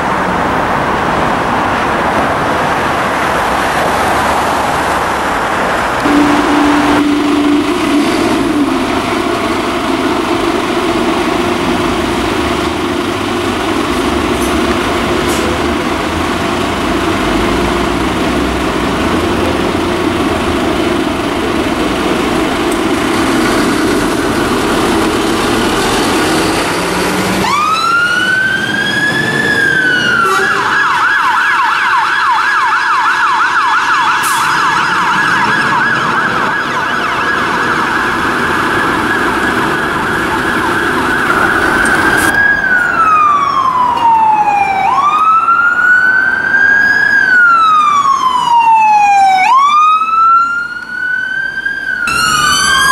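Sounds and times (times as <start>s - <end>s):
electronic siren wailing and yelping: 6.0s - 9.2s, 27.4s - 52.9s
fire engine diesel engine running: 6.0s - 30.6s, 34.2s - 48.6s.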